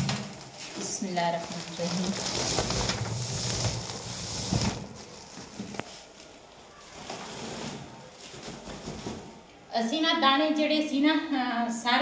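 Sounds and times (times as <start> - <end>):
plastic sack rustling: 0.0 - 9.5.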